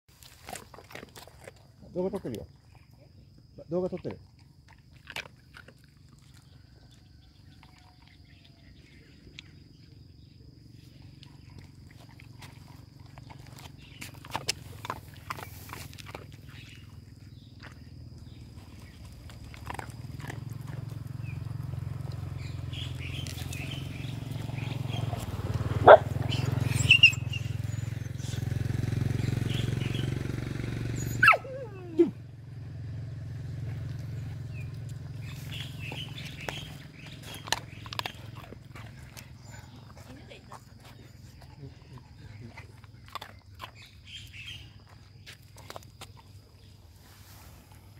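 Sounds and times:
dog chewing dry kibble: 0.1 - 2.8, 3.9 - 9.8, 11.0 - 25.2, 33.9 - 46.6
dog growling low: 33.6 - 43.9.

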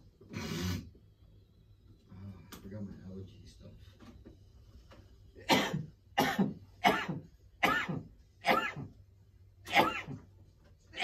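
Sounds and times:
person coughing: 5.4 - 9.0, 9.6 - 10.3.

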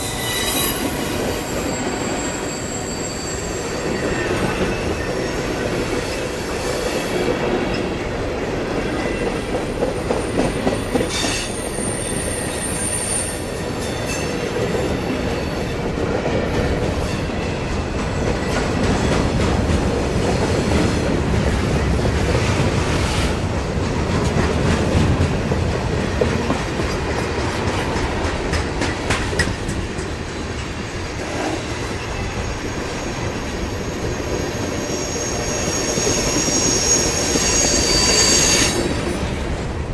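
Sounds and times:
high-pitched wheel squeals: 0.0 - 7.4, 10.8 - 14.5, 31.5 - 39.0
steel wheels rumbling on rail: 0.0 - 39.9
wheels clicking over rail joints: 23.7 - 30.7.

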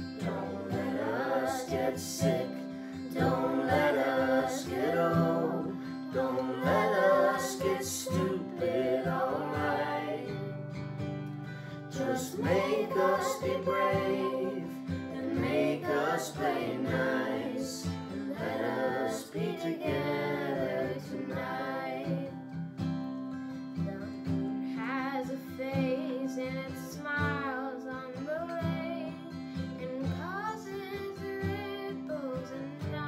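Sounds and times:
family singing together: 0.0 - 10.8, 11.5 - 22.6, 24.0 - 33.0
acoustic guitar strumming: 0.0 - 33.0.

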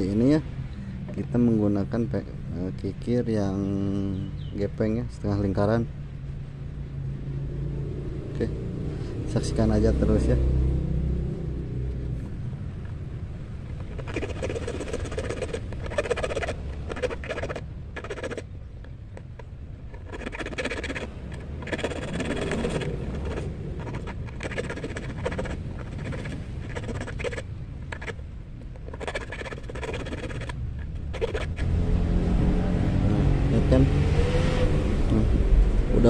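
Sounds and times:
low rumble: 5.8 - 14.2, 30.4 - 36.0
file rasping on steel hook: 13.8 - 18.4, 19.2 - 31.7.

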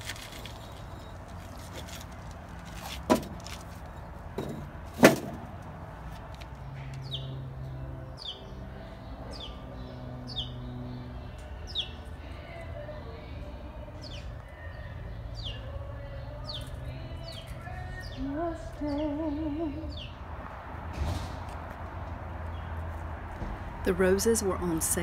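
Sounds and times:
stones knocking on a cart: 2.8 - 3.7, 4.3 - 5.6
bird chirping: 6.6 - 12.6, 14.0 - 20.2.

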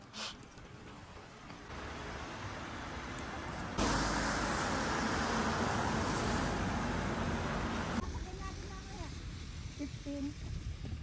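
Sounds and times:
car engine and tyre noise: 0.5 - 8.1.

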